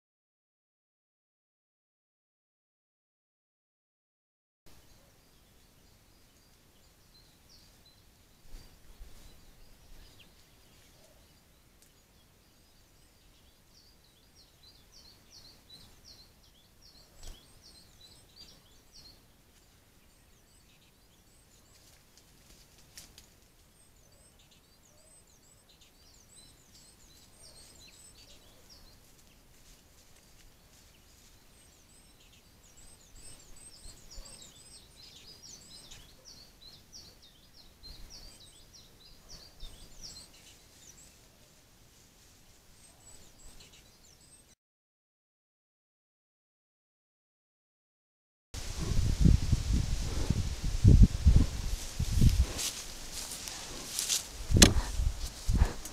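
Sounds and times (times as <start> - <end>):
faint songbirds chirping: 4.7 - 44.6, 48.6 - 55.9
sharp knocks: 54.6 - 54.9.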